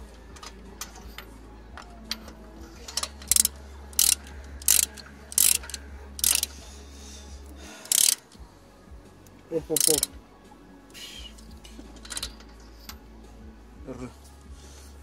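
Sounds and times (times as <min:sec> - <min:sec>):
ratchet wrench clicking: 0:02.9 - 0:06.5, 0:07.8 - 0:08.3, 0:09.8 - 0:10.1.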